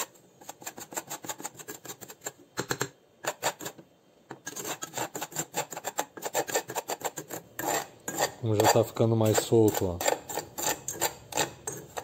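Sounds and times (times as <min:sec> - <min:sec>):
metal spoon scraping a saucepan: 0:03.2 - 0:03.8, 0:04.4 - 0:12.0.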